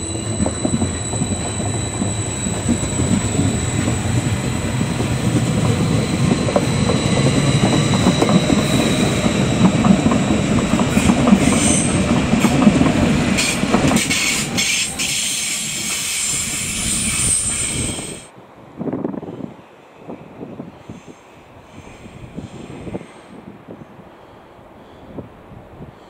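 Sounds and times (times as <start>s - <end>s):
high-pitched train whine: 0.0s - 18.3s
train wheels rumbling on rail: 0.0s - 23.8s.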